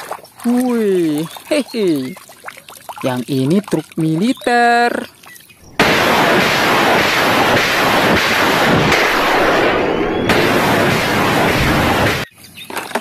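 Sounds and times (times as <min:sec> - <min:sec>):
rockets launching roar: 0:05.7 - 0:12.3.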